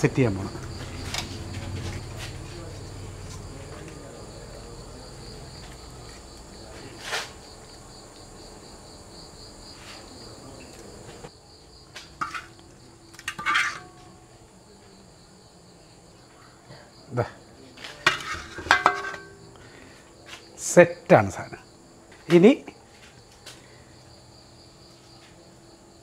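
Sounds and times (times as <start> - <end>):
crickets chirping: 0.0 - 26.0
scraping rustling noises: 5.6 - 7.5, 9.7 - 11.3.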